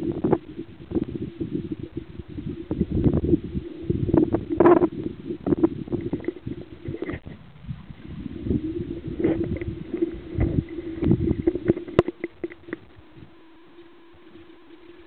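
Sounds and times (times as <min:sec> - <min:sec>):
steady low hum: 0:00.0 - 0:15.0
water sloshing: 0:04.2 - 0:13.0
underwater knocks: 0:08.5 - 0:12.8.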